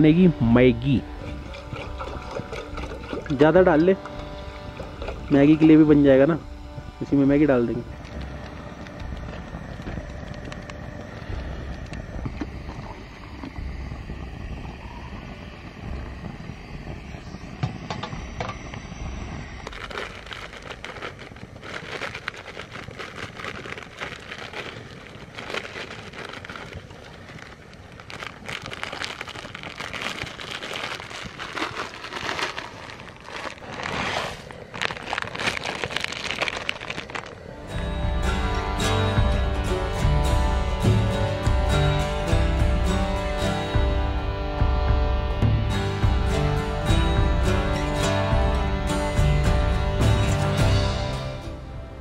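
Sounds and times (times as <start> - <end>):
gas stove burning: 0.0 - 21.6
food packets crinkling: 0.7 - 5.7, 19.6 - 37.7.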